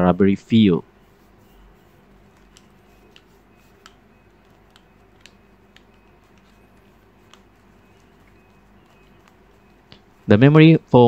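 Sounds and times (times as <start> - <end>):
plastic headphones clicking: 2.3 - 10.1.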